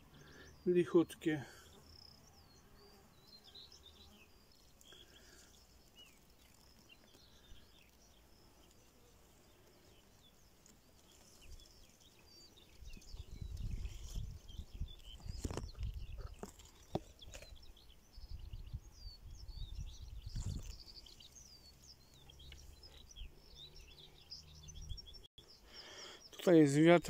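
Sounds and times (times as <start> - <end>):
faint bird chirps: 0.0 - 27.0
wind buffeting microphone: 12.8 - 16.4, 18.2 - 20.8.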